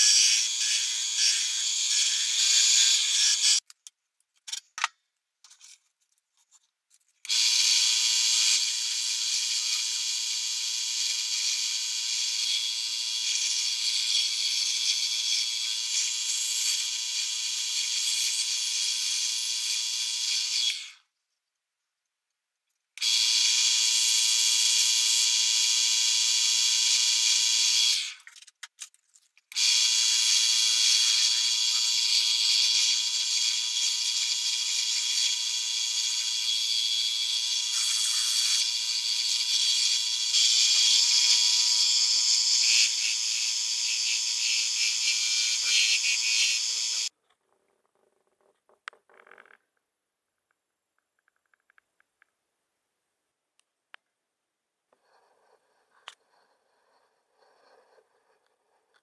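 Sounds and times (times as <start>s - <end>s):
wood lathe whining: 29.5s - 47.1s.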